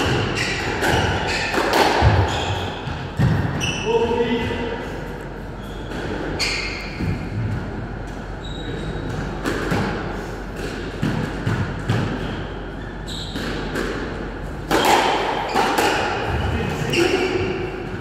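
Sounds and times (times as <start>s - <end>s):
ball bouncing on wooden floor: 0.0s - 3.7s.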